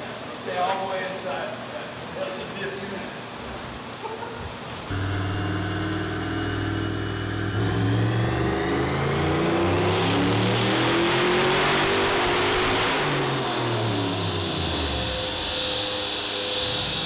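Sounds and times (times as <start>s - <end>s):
turbo whistle: 4.9s - 9.4s
engine revving under load: 4.9s - 17.0s.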